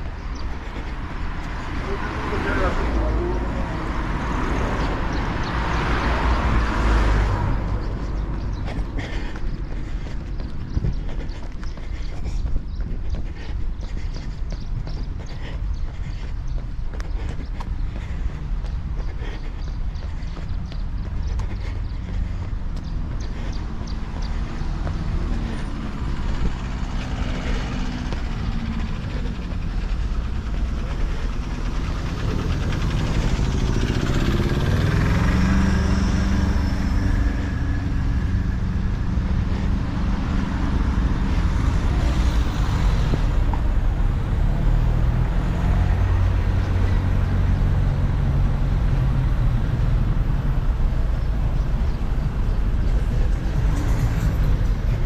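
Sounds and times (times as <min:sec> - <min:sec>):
vehicle engines running: 0:00.0 - 0:55.0
heavy low engine hum: 0:20.6 - 0:55.0
engine rising in pitch: 0:25.1 - 0:39.4.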